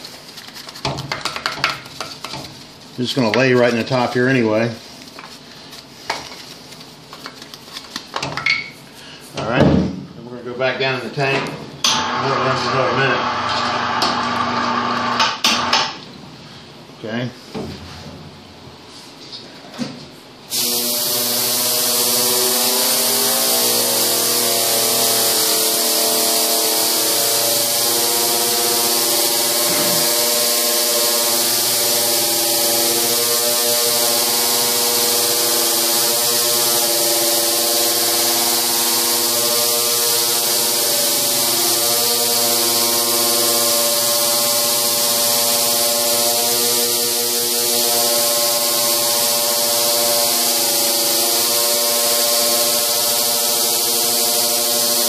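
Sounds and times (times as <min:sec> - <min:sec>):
ultrasonic cleaning tank drone: 0:11.9 - 0:15.7, 0:20.5 - 0:55.0.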